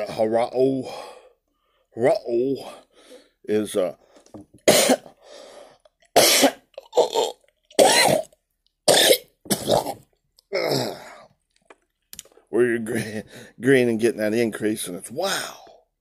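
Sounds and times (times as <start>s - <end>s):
man coughing: 4.7s - 5.1s, 6.2s - 7.2s, 7.8s - 8.3s, 8.9s - 11.1s.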